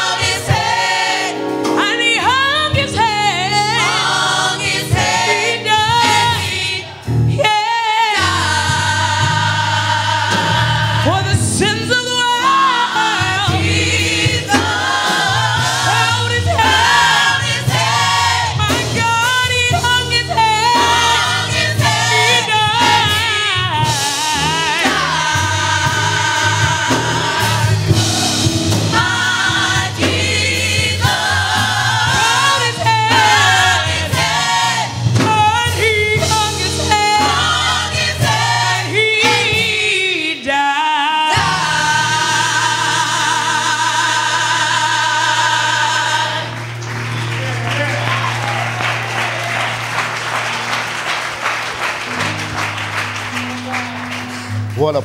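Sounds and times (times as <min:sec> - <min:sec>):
steady bass accompaniment: 0:00.0 - 0:40.4, 0:41.3 - 0:55.0
gospel choir singing: 0:00.0 - 0:54.5.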